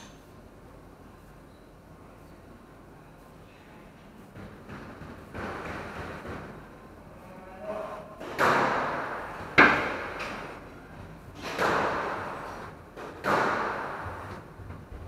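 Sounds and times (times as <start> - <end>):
squash ball hitting racket and walls: 4.3 - 6.9, 8.2 - 15.0.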